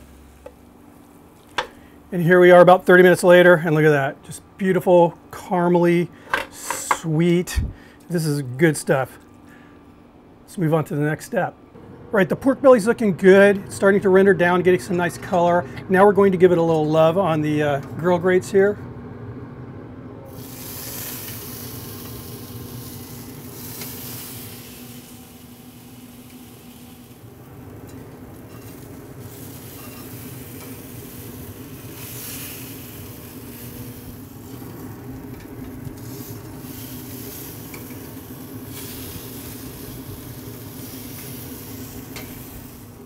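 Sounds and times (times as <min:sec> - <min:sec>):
meat sizzling on a grill: 0:20.3 - 0:43.0.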